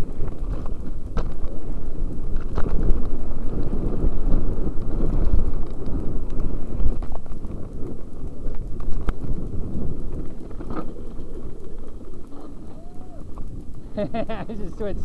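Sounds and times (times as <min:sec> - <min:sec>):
mountain bike rattling over rocky trail: 0:00.0 - 0:15.0
wind buffeting microphone: 0:00.0 - 0:15.0
sharp clicks: 0:04.7 - 0:15.0.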